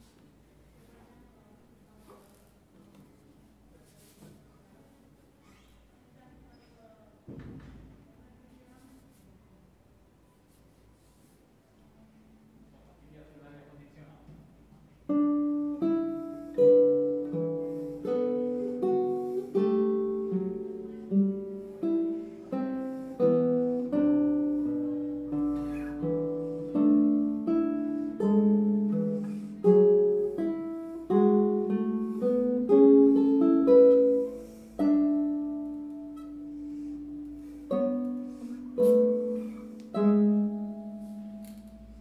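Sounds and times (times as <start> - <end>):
classical guitar fingerpicking: 14.9 - 42.0.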